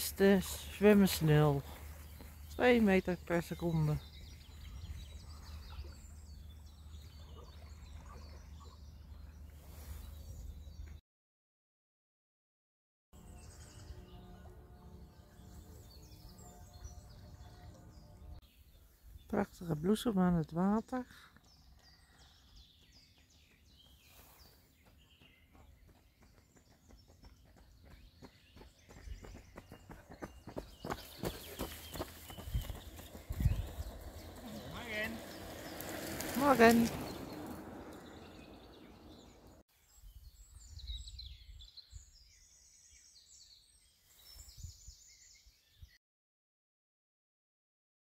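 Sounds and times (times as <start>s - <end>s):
small birds chirping: 0.0s - 11.0s, 13.2s - 46.0s
low wind rumble: 32.3s - 39.6s.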